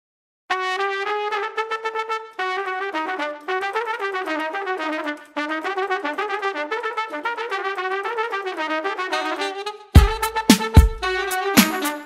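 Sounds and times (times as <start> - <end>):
trumpet melody: 0.5 - 12.0.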